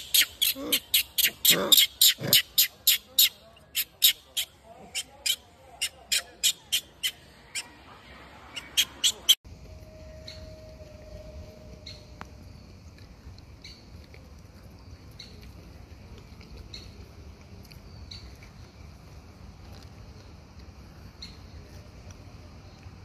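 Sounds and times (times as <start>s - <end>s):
sharp high animal calls: 0.0s - 7.8s, 8.5s - 9.4s.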